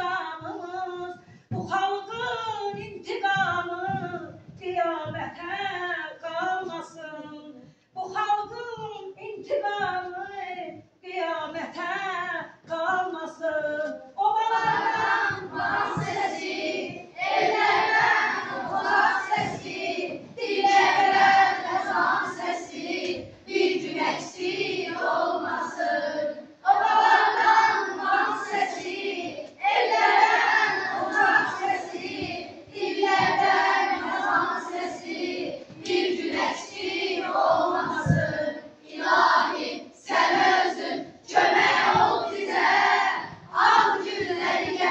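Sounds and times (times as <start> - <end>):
woman singing: 0.0 - 15.2
children's choir singing: 13.0 - 44.9.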